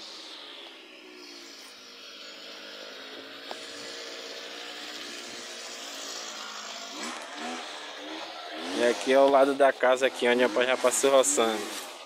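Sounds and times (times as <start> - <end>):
brush cutter engine running: 0.0 - 12.0.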